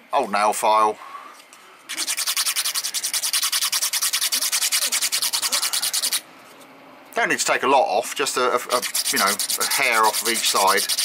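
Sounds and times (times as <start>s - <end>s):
nail file rasping on wood: 1.9s - 6.2s, 8.7s - 11.0s.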